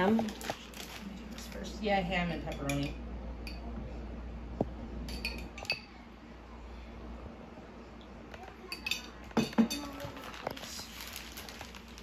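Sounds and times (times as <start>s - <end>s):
metal spoon clinking on containers: 2.4s - 3.7s, 5.0s - 5.9s, 8.6s - 10.0s.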